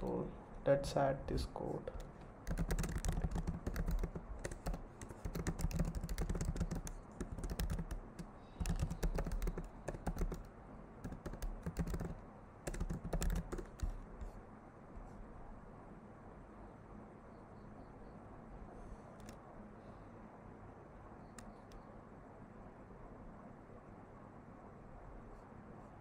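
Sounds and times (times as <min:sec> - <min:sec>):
typing on computer keyboard: 0:01.9 - 0:14.4, 0:19.2 - 0:19.4.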